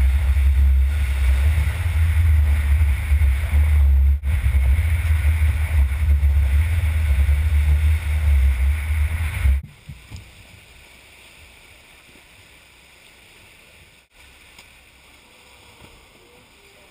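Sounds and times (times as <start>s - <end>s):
wind buffeting microphone: 0.0s - 10.2s
waves breaking on shore: 0.0s - 16.9s.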